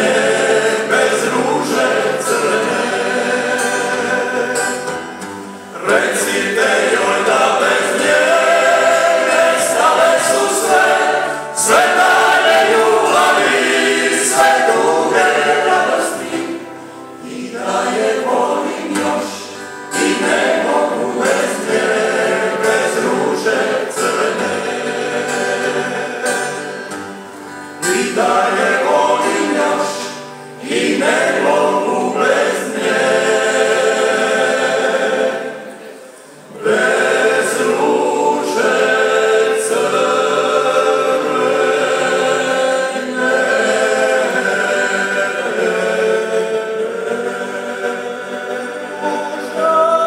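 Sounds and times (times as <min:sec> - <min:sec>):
acoustic guitar: 0:00.0 - 0:50.0
male choir singing harmony: 0:00.0 - 0:50.0.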